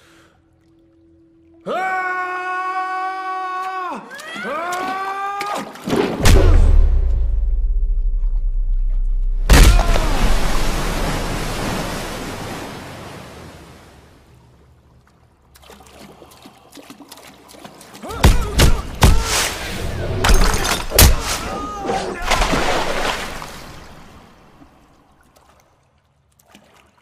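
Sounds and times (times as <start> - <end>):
heavy hit with water splash: 5.8 - 12.6, 18.1 - 21.6, 22.2 - 24.3.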